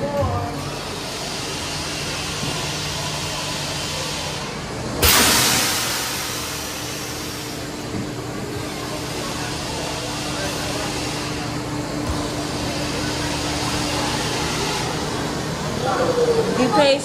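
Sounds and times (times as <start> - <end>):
loud blast of air: 5.0 - 7.8.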